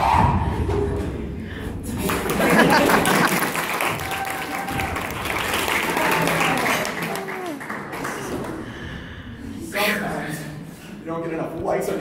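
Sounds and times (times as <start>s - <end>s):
audience applauding: 2.0s - 8.9s.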